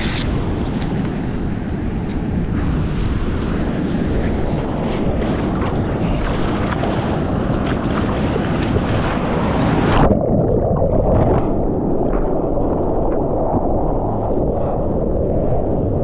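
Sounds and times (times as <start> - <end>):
whitewater rushing and splashing: 0.0 - 10.2
muffled underwater sound: 2.3 - 16.0.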